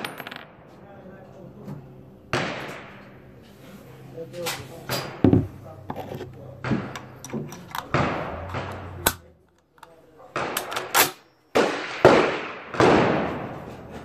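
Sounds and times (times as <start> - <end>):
rifle gunshots with echo: 7.8 - 9.2, 10.3 - 13.7.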